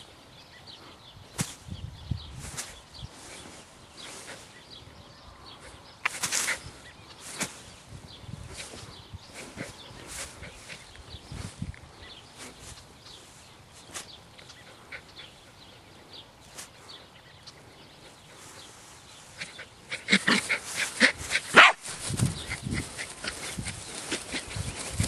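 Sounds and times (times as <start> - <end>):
dog running through grass: 20.0 - 25.0
dog barking: 21.5 - 21.8.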